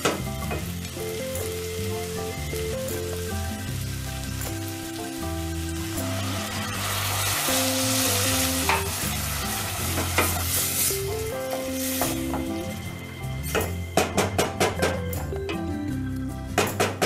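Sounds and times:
food sizzling in a pot: 0.0s - 14.0s
water pouring into a pot: 5.0s - 11.2s.

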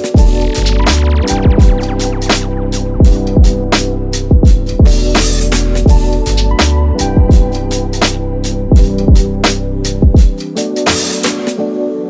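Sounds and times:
crisp percussion: 0.0s - 11.6s
held chords: 0.0s - 11.6s.

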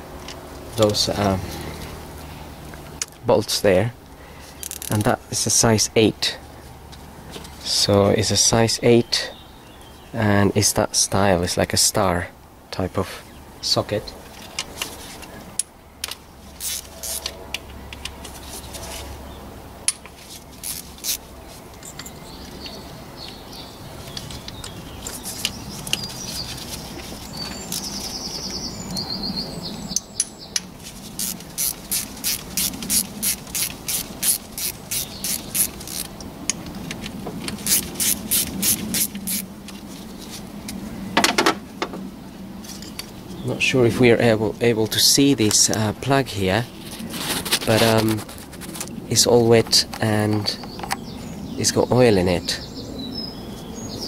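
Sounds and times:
ratchet clicking: 16.6s - 17.3s, 20.6s - 21.2s, 31.2s - 36.1s, 37.6s - 39.4s.

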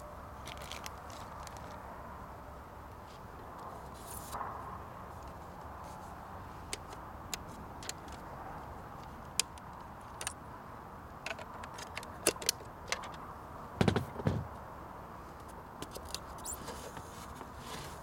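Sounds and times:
clatter of knocks: 13.8s - 14.5s.

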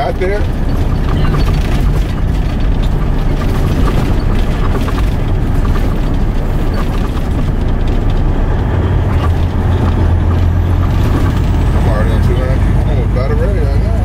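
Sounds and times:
road noise: 0.0s - 14.0s
truck diesel engine rumble: 0.0s - 14.0s.

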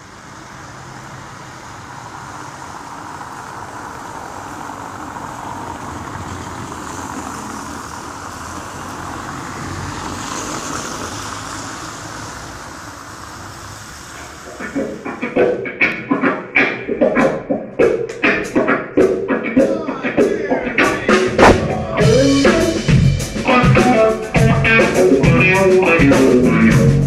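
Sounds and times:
road traffic: 0.0s - 27.0s
vehicle passing: 0.0s - 27.0s.

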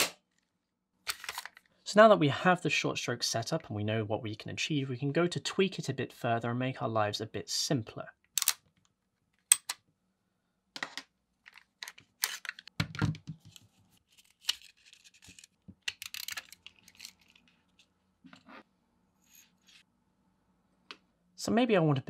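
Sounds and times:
metal clicks and scrapes: 14.2s - 17.6s.

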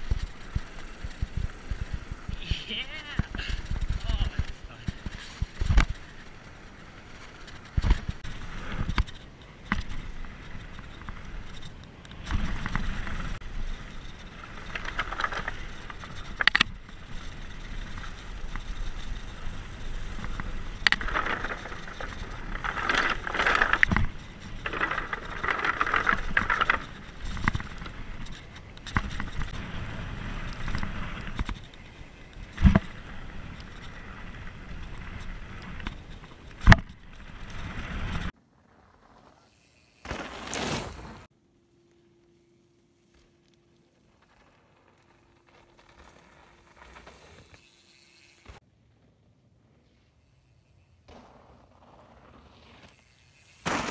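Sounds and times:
bike rattling and knocking: 0.0s - 38.3s, 51.1s - 53.9s
bike tyres on dirt trail: 0.0s - 53.9s
tyres rattling over wooden bridge: 12.3s - 38.3s.

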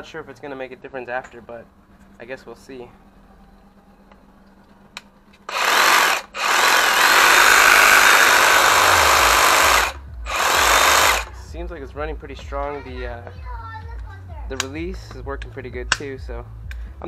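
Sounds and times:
reciprocating saw running: 5.5s - 11.4s.

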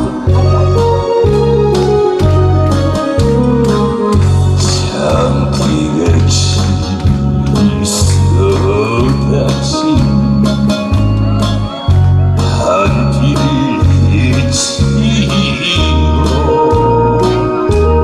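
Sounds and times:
instrumental backing track: 0.0s - 18.0s.

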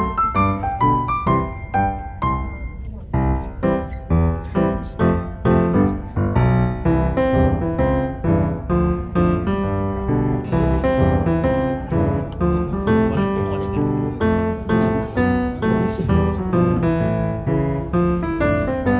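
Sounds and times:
piano chords: 0.0s - 18.9s.

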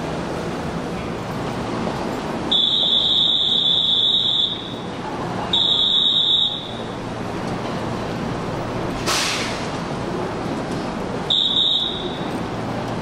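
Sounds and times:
hum of busy station platform: 0.0s - 13.0s
high electronic warning beep: 2.5s - 4.8s.

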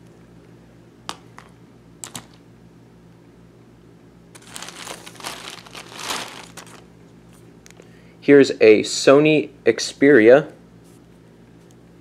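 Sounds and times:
plastic bag crinkling: 4.3s - 6.9s.

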